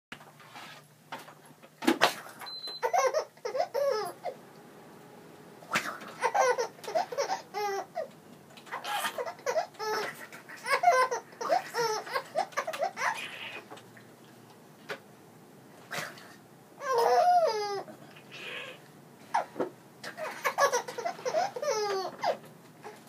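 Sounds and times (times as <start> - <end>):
baby giggling: 2.8 - 4.4, 5.8 - 13.7, 16.8 - 18.6, 19.3 - 23.0.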